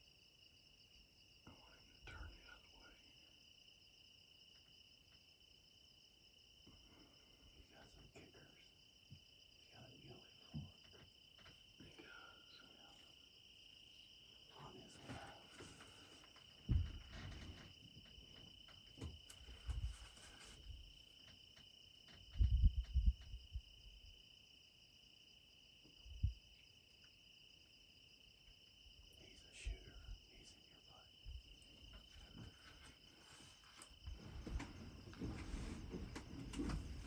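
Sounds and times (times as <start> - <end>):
insects trilling: 0.0 - 37.0
soft low bumps: 14.7 - 21.0, 22.2 - 24.0, 33.9 - 37.0.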